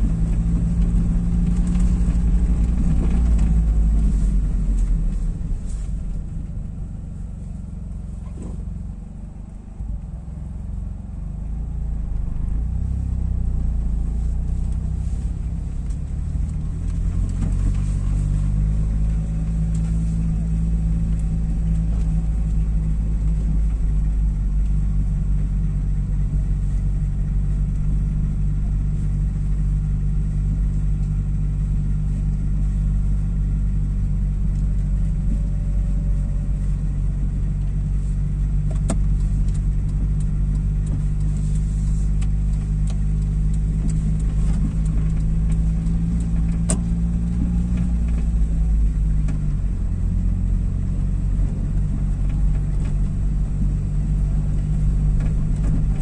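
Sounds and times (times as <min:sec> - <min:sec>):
car engine and road hum: 0:00.0 - 0:56.0.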